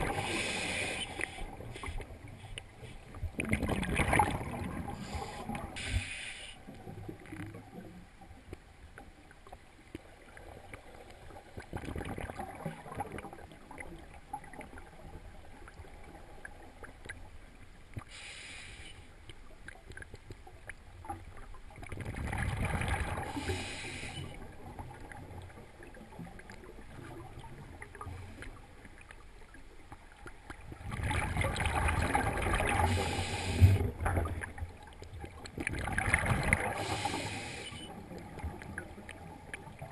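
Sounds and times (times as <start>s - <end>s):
diver breathing through regulator: 0.0s - 2.1s, 5.0s - 6.6s, 18.1s - 19.0s, 23.2s - 24.4s, 32.8s - 33.9s, 36.7s - 37.9s
faint water hiss: 0.0s - 3.5s, 4.7s - 11.6s, 12.6s - 20.4s, 23.0s - 30.6s, 32.6s - 35.3s, 36.5s - 39.9s
bubbling: 3.2s - 5.7s, 11.5s - 14.9s, 30.5s - 37.1s.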